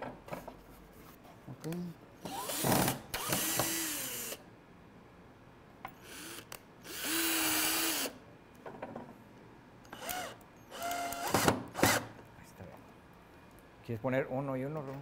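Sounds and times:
power drill driving screws: 2.2s - 4.4s, 6.0s - 8.2s, 9.9s - 12.1s.

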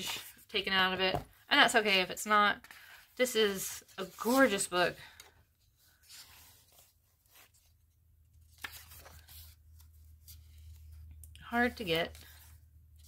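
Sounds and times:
book pages being turned: 2.6s - 13.0s.

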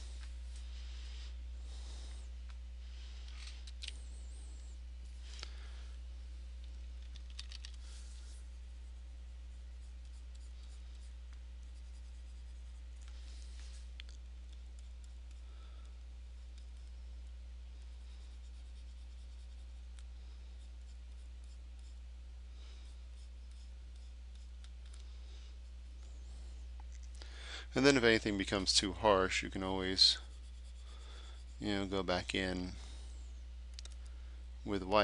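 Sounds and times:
low electrical hum: 0.0s - 35.0s
stylus scratching and tapping on tablet: 9.8s - 15.4s, 16.4s - 22.1s, 22.8s - 26.2s, 28.4s - 32.4s.

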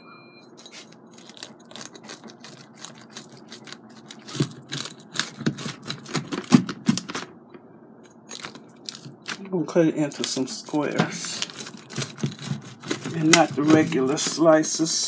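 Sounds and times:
pizza crust crunching: 0.6s - 7.3s, 8.2s - 14.9s
pizza cutter wheel rolling: 10.0s - 15.0s.

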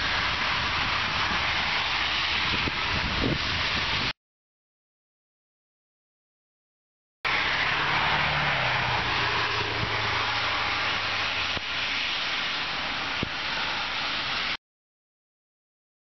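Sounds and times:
street noise: 0.0s - 4.1s, 7.2s - 14.6s
wind hiss: 0.0s - 4.1s, 7.3s - 14.6s
low vehicle engine hum: 7.3s - 11.6s.

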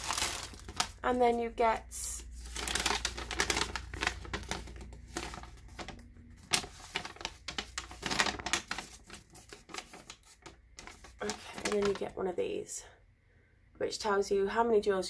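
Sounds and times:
paper rustling and crackling: 0.0s - 1.1s, 2.2s - 12.2s.

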